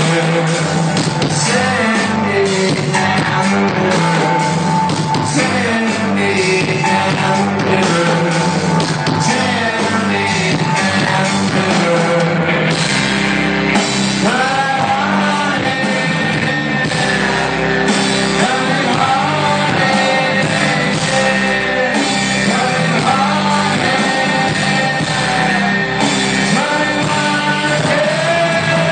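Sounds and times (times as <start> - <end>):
live rock band: 0.0 - 28.9
man singing lead vocal: 0.0 - 28.9.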